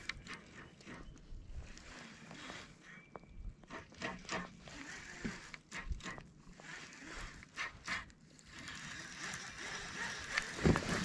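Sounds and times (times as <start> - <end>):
rod and reel clicks: 0.0 - 2.9, 3.6 - 11.0.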